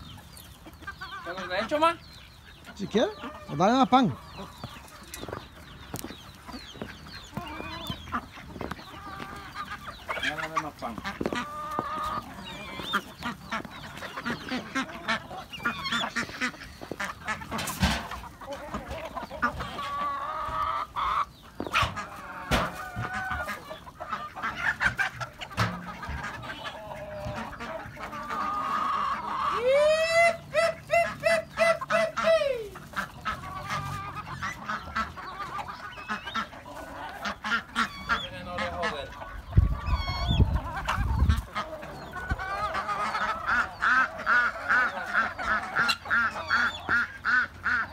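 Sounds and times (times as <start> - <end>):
chickens and ducks clucking and calling: 0.0 - 47.9
bird honking calls: 0.8 - 18.4, 30.3 - 47.9.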